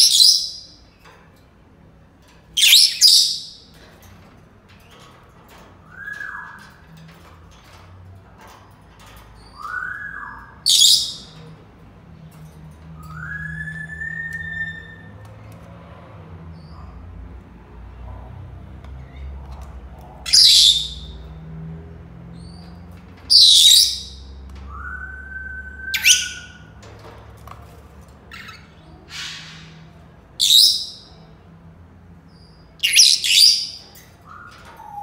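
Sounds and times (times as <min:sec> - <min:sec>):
parrots squawking: 0:02.6 - 0:03.6, 0:28.3 - 0:31.1, 0:32.8 - 0:35.0.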